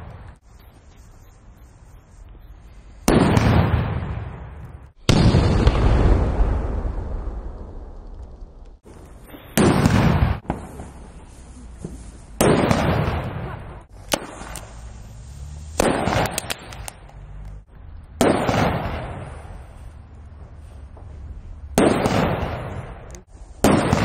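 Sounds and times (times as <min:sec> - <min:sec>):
firecracker bangs: 0:03.0 - 0:08.0, 0:08.8 - 0:17.1, 0:18.2 - 0:19.8, 0:21.6 - 0:24.0
small crackles: 0:07.5 - 0:09.6, 0:13.9 - 0:18.2.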